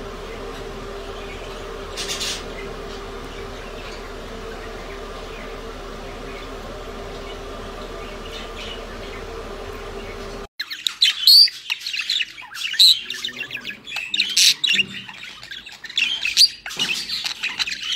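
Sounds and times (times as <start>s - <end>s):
steady hum: 0.0s - 10.5s
budgerigars chattering and squawking: 0.3s - 17.9s.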